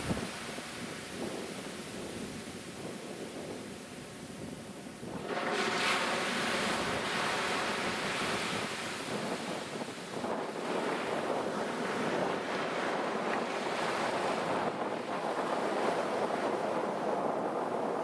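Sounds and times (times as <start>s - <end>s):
surf washing against rocks: 0.0s - 18.0s
wind buffeting microphone: 0.0s - 18.0s.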